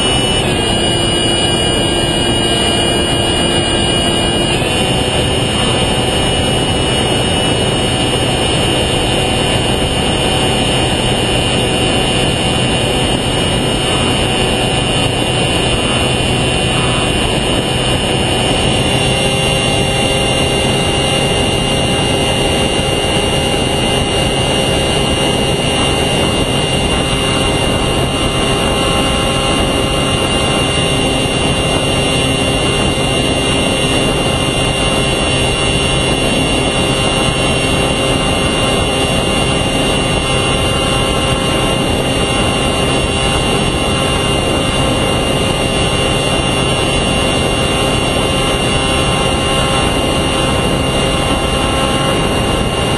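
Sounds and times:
electric motor and propeller whine: 0.0s - 52.9s
wind noise: 0.0s - 52.9s.

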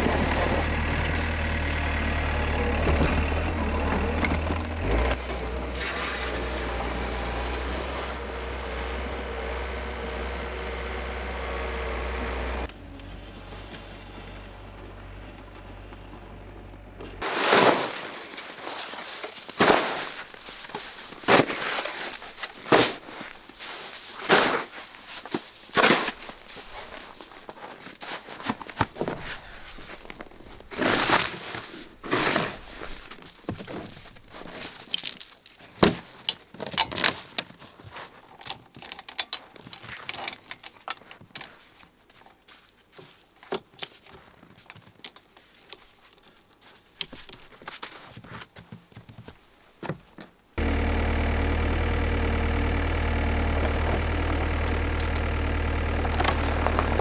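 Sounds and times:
loader engine idling: 0.0s - 5.7s, 6.8s - 17.2s, 50.6s - 57.0s
snow shovel scraping snow: 17.2s - 34.9s, 50.6s - 57.0s.

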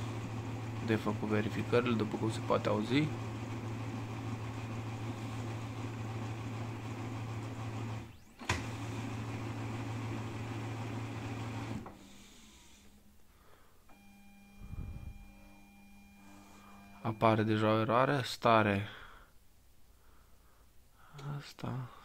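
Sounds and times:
printer motor hum: 0.0s - 13.0s, 13.9s - 17.4s
printer click: 8.4s - 8.7s
faint electrical hum: 12.0s - 22.0s.

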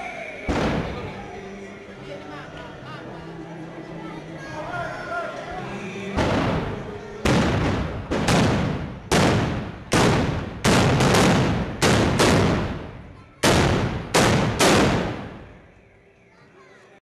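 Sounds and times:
gunshots with reverberant tail: 6.2s - 15.5s.

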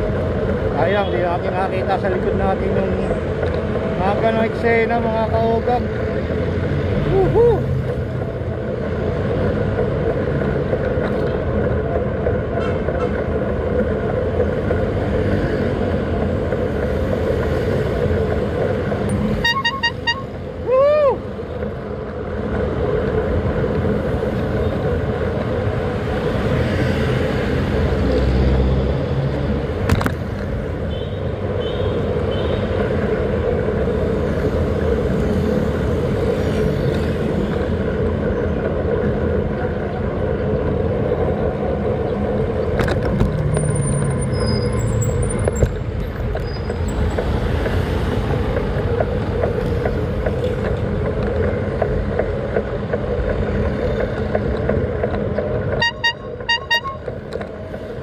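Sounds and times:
traffic: 0.0s - 58.0s
wind and road noise: 0.0s - 58.0s.

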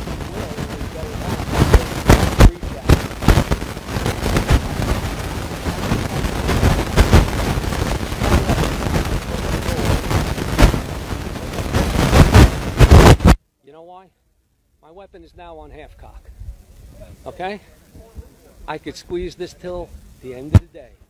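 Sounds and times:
man's voice: 0.0s - 3.4s, 8.2s - 11.9s, 17.0s - 21.0s
crackling and rumbling distortion: 0.0s - 13.5s, 14.4s - 21.0s.

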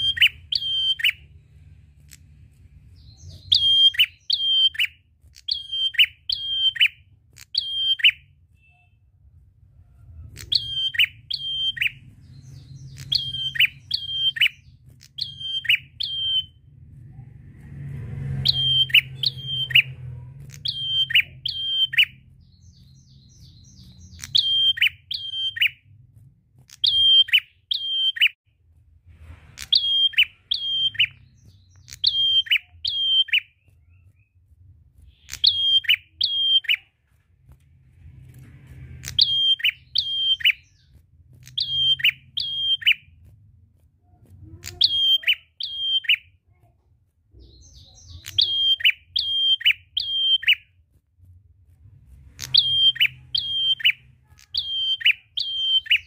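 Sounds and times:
bird singing sharp notes: 0.0s - 1.4s, 3.0s - 9.1s, 10.3s - 16.6s, 18.3s - 25.8s, 29.6s - 34.4s, 35.1s - 36.9s, 38.9s - 43.2s, 44.6s - 46.4s, 47.4s - 50.7s, 52.4s - 56.0s
faint low hum: 0.0s - 27.0s.

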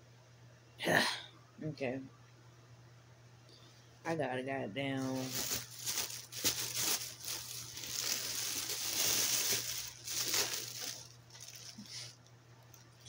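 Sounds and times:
plastic bag crinkling: 5.0s - 12.1s.

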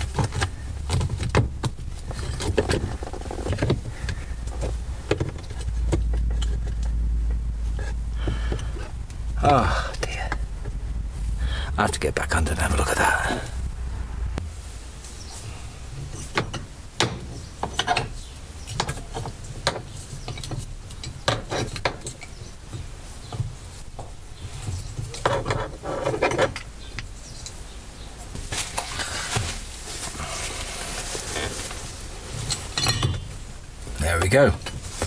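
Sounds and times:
scraping and handling: 0.0s - 11.4s, 28.4s - 35.0s
hand tools clinking on metal: 32.5s - 33.3s.

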